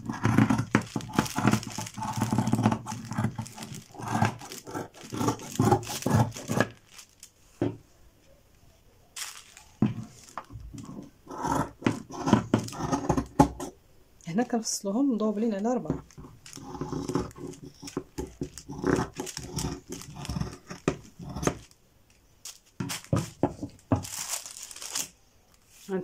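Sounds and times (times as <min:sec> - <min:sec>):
paper and fabric handling: 0:00.0 - 0:07.6, 0:09.2 - 0:11.0, 0:16.0 - 0:21.7, 0:22.4 - 0:26.0.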